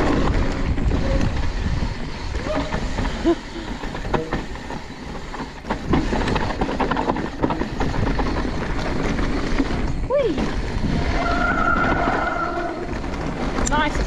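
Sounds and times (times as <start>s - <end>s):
wind on microphone: 0.0s - 3.1s, 7.6s - 14.0s
bike rattling and knocking: 0.0s - 14.0s
tyres on dirt and rocks: 0.0s - 14.0s.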